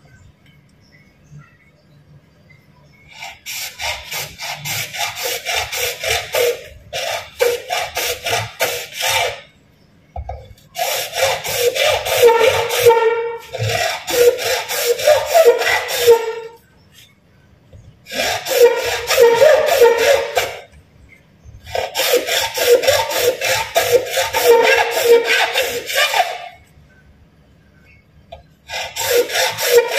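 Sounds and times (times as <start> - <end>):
hand saw cutting plastic pipe: 3.1 - 9.5, 10.2 - 16.6, 18.1 - 20.7, 21.6 - 26.6, 28.6 - 29.9.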